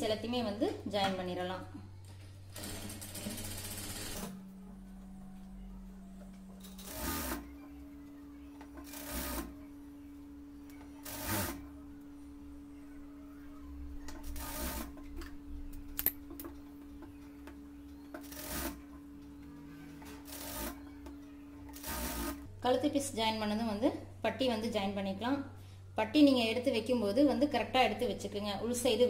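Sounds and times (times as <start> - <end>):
steady hum: 0.0 - 29.0
sewing machine stitching: 2.5 - 4.4, 6.6 - 7.5, 8.8 - 9.6, 11.0 - 11.6, 14.2 - 15.0, 18.2 - 18.8, 20.0 - 20.8, 21.7 - 22.4.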